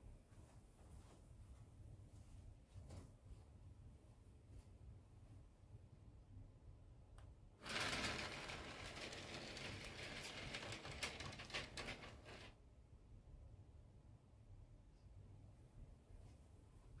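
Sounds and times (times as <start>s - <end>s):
model train wheels clattering: 7.6s - 12.5s.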